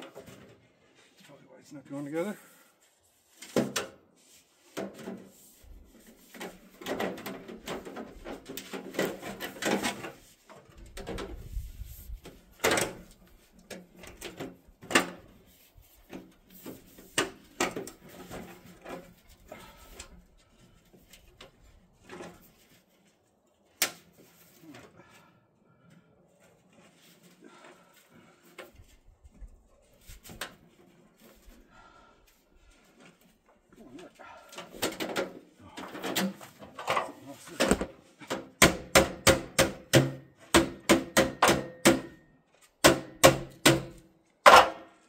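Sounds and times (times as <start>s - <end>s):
sharp knocks on metal pipe: 38.6s - 42.2s, 42.8s - 44.0s.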